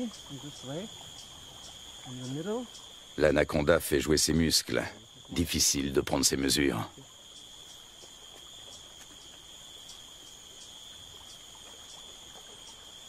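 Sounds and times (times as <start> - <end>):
high-pitched insect drone: 0.0 - 13.0
faint ticks: 7.0 - 13.0.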